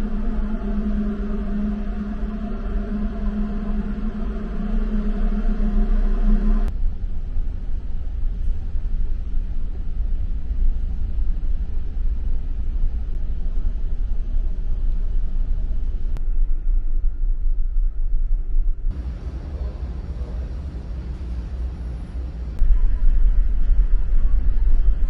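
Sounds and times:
ship engines rumbling: 0:00.0 - 0:06.7, 0:18.9 - 0:25.0.

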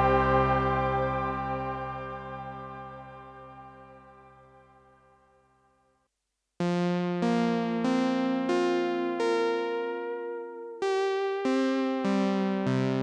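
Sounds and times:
synthesizer chords: 0:00.0 - 0:04.8.

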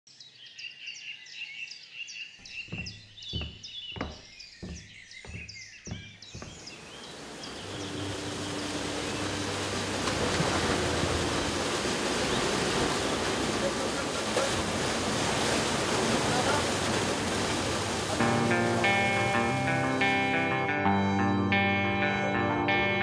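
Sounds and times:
birds chirping: 0:00.1 - 0:22.5
dull thuds: 0:02.4 - 0:06.8
waterfall rushing: 0:06.0 - 0:20.6.

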